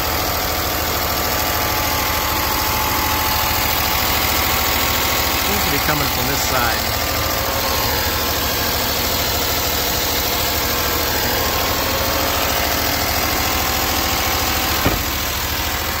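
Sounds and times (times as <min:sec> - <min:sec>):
car engine idling: 0:00.0 - 0:16.0
engine ticking noise: 0:00.0 - 0:16.0
brief thump: 0:14.8 - 0:15.2.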